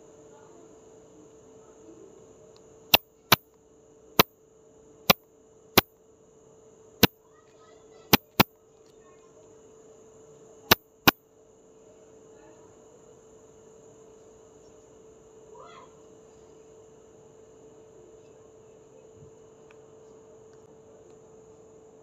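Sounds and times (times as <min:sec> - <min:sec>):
sharp loud clicks: 0:08.1 - 0:08.5.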